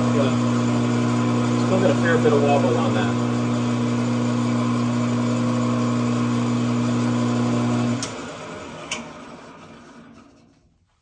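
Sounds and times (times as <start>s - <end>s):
metal lathe humming: 0.0s - 10.4s.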